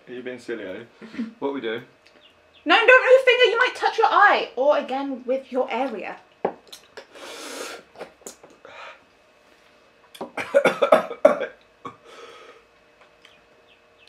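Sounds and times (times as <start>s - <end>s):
breathy puffs of air: 7.0s - 8.0s, 8.6s - 9.1s, 12.0s - 12.7s
person coughing and clearing throat: 10.2s - 12.0s.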